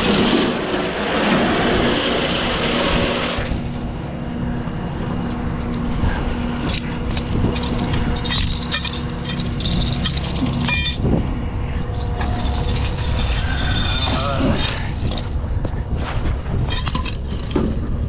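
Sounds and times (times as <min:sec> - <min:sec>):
tow chain clinking: 0:03.3 - 0:15.4, 0:16.5 - 0:18.0.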